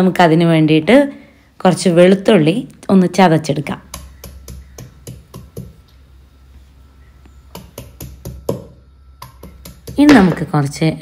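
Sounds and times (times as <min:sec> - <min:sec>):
stone pestle pounding garlic: 0:03.9 - 0:05.8, 0:07.6 - 0:10.4.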